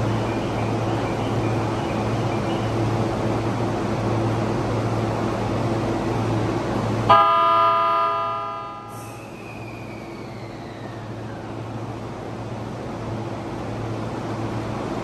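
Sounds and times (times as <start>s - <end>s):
electric train humming: 0.0s - 15.0s
train horn blast: 7.1s - 9.0s.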